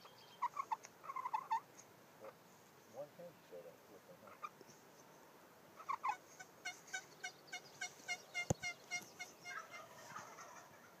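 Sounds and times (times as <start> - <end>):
wild turkey calling: 0.0 - 2.4, 4.2 - 4.8, 5.8 - 11.0.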